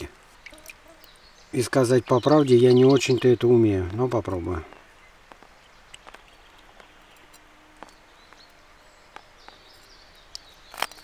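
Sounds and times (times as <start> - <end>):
faint bird chirps: 0.0 - 11.0
faint clicks and taps: 5.2 - 9.6.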